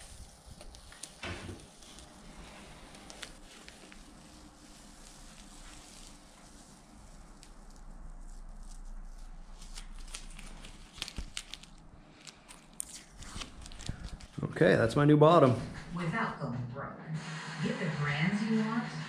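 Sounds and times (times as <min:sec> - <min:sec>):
tape being peeled off: 0:00.0 - 0:14.4
tape crinkling: 0:00.0 - 0:14.4.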